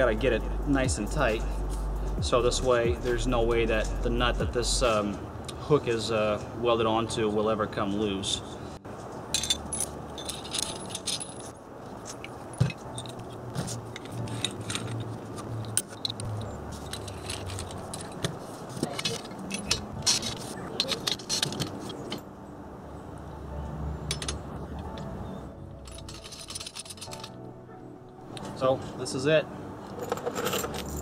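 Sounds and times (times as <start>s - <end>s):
steel parts clinking and scraping: 9.0s - 22.3s, 24.1s - 24.4s, 25.8s - 27.4s, 29.8s - 31.0s.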